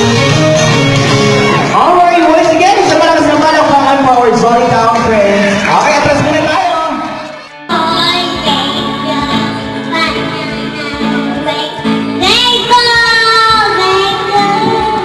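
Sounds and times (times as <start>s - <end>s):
karaoke backing music: 0.0s - 15.0s
child singing into a microphone: 7.6s - 15.0s.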